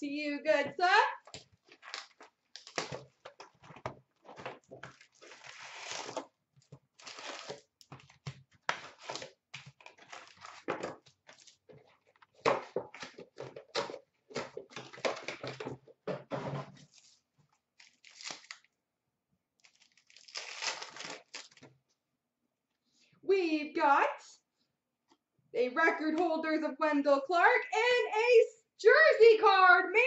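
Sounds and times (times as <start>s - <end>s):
foil wrappers crinkling: 1.3s - 12.4s, 17.8s - 18.7s, 19.6s - 21.7s.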